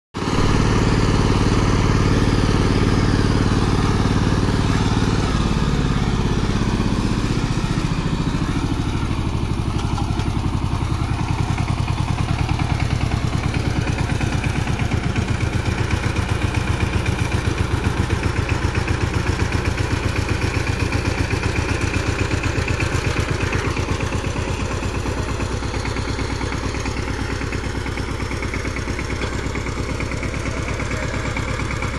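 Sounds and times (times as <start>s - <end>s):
diesel engine running: 0.2s - 31.9s.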